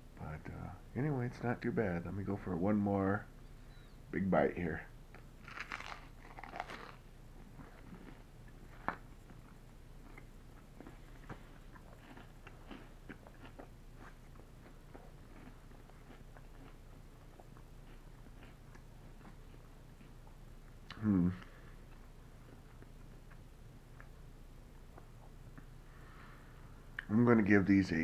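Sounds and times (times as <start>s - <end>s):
steady low hum: 0.0s - 28.0s
chewing with faint crunching: 5.1s - 27.2s
person biting crusty bread: 5.4s - 9.1s.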